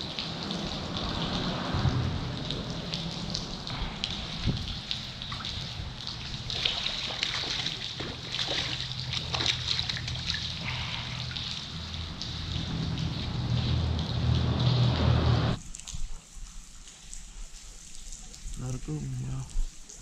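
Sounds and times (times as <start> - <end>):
rain on metal boat: 0.0 - 20.0
rain pattering on water: 0.0 - 20.0
water sloshing and dripping: 0.0 - 20.0
low rumble: 0.2 - 6.5, 8.9 - 15.6.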